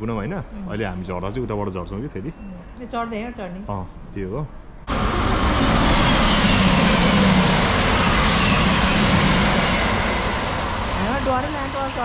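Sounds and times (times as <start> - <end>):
train rushing past: 4.6 - 12.0.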